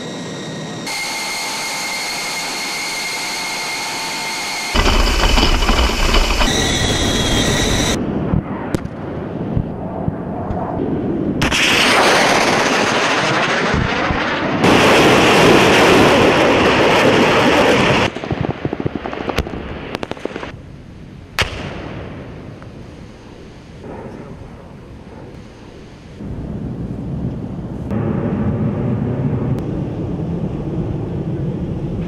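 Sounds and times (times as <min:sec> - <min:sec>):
rockets launching roar: 0:00.0 - 0:20.6
loud bang: 0:04.7 - 0:08.0
sharp cracks: 0:04.7 - 0:08.0.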